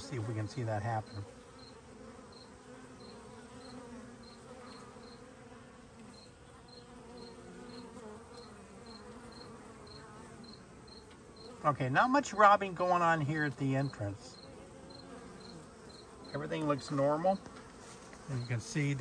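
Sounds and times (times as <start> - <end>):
bees buzzing: 0.0 - 19.0.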